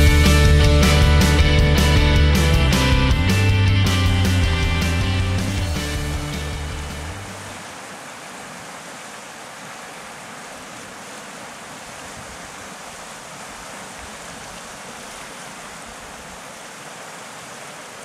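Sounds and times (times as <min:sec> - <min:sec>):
river rushing over rapids: 0:05.6 - 0:18.0.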